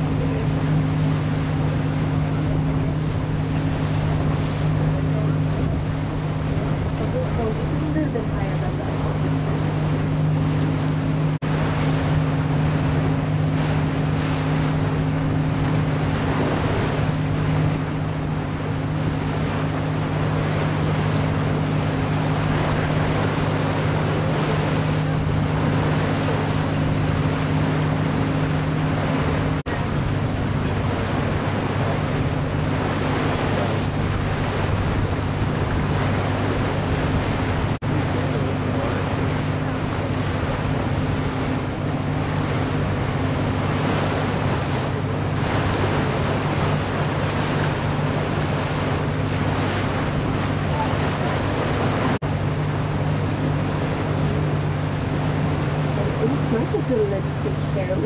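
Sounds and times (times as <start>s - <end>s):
boat engine humming: 0.0s - 58.0s
water washing: 0.0s - 58.0s
wind noise on microphone: 28.5s - 37.8s.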